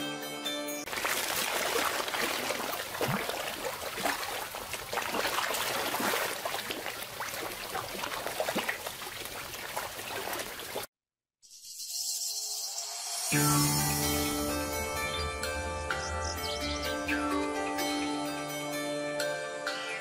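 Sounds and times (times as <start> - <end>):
pond water trickling and splashing: 0.9 - 10.9.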